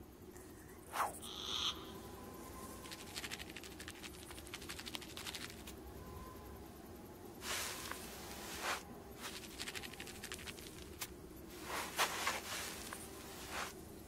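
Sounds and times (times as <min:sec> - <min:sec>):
hissing scrapes over sand: 0:07.4 - 0:10.2, 0:11.5 - 0:13.8
light pattering: 0:07.6 - 0:13.8.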